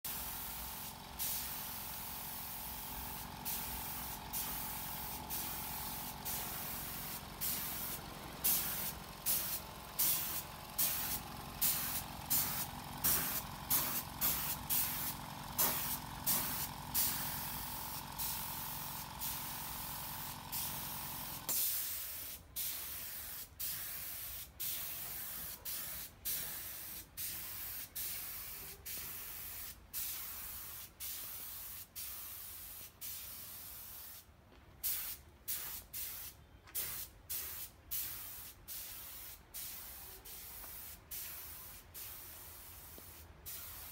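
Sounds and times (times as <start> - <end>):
air compressor humming: 0.1 - 21.6
air gun blasts hissing: 0.1 - 43.9.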